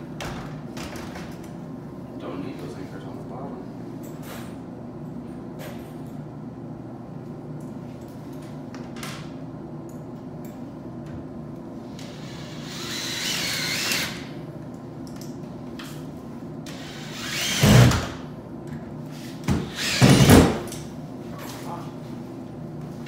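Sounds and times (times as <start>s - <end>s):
cordless drill driving screws: 12.1s - 14.3s, 16.7s - 18.0s, 19.6s - 20.5s.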